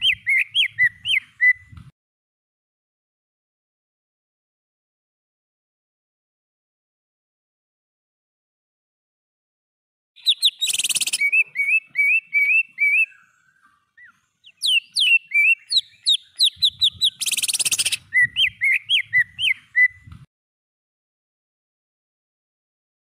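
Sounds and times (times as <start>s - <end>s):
bird whistling song: 0.0s - 1.9s, 10.2s - 20.2s.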